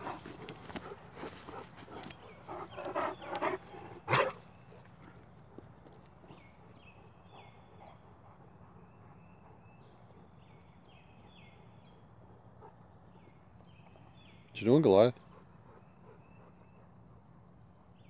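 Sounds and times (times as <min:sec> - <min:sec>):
dogs growling: 0:00.0 - 0:05.3.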